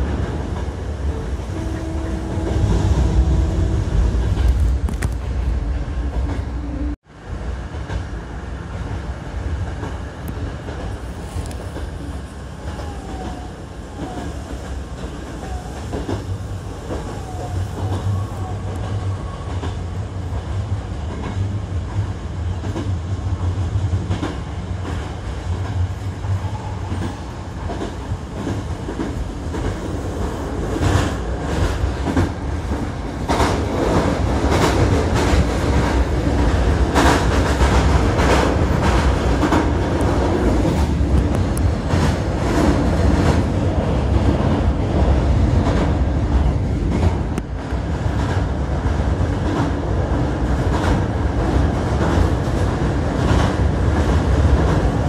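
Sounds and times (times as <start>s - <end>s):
oncoming train passing: 0.0s - 55.0s
rail joints clickety-clack: 0.0s - 55.0s
train wheels rumbling on rail: 0.0s - 55.0s.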